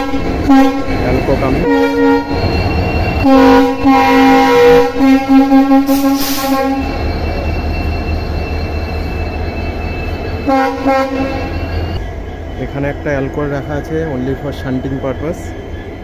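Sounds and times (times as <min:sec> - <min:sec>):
locomotive horn blast: 0:00.0 - 0:07.1, 0:10.4 - 0:12.0
diesel engine rumbling: 0:00.0 - 0:16.0.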